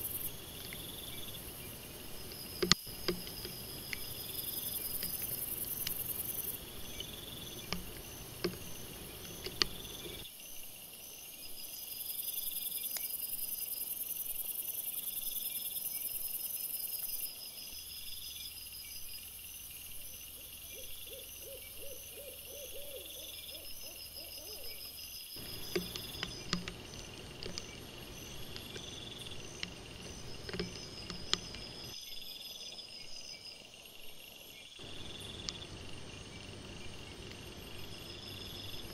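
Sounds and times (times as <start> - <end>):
faint clicks and rustles: 0.0 - 10.2, 25.4 - 32.0
crickets chirping: 0.0 - 38.9.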